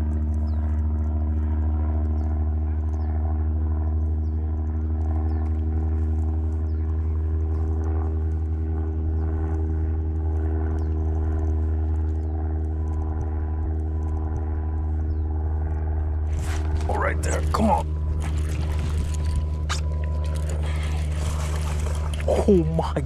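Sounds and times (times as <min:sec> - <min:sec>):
steady motor hum: 0:00.0 - 0:23.0
faint light ticks: 0:09.4 - 0:15.8.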